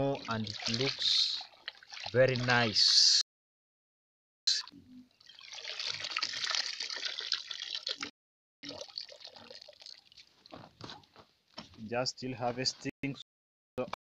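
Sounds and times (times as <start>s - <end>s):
water draining and dripping: 0.0s - 2.9s, 5.1s - 10.6s.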